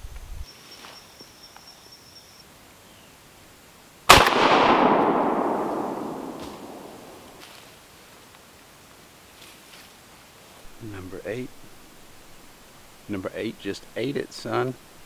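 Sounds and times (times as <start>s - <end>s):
shotgun shot echoing: 4.1s - 7.4s.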